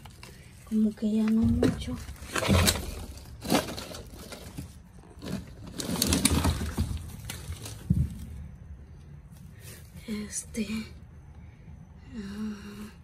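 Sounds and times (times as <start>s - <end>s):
plastic bags rustling and crinkling: 0.0s - 8.6s.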